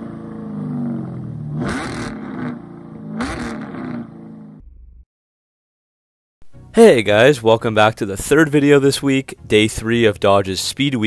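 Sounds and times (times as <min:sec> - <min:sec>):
car engine revving: 0:00.0 - 0:04.8.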